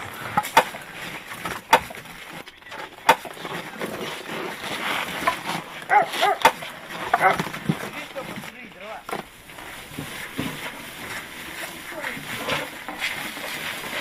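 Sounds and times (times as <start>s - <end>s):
wooden logs knocking: 0.0s - 11.2s
clatter and rustle of wood: 0.0s - 14.0s.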